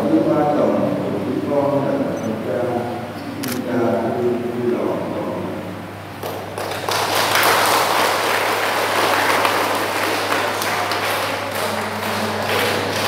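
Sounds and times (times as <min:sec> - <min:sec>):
congregation clapping: 0:06.2 - 0:13.0.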